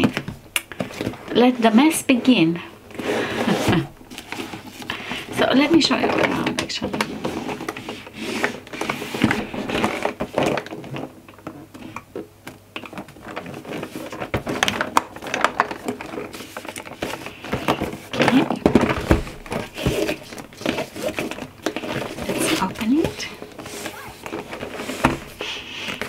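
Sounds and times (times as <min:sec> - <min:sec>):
cardboard box scraping and tapping: 0:12.8 - 0:26.0.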